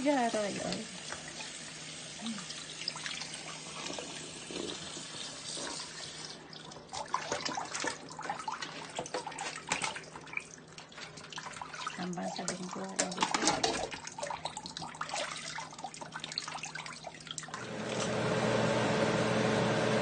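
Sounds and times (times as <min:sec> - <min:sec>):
faucet running into steel sink: 0:00.0 - 0:18.1
crab shells clattering on steel: 0:12.5 - 0:13.9.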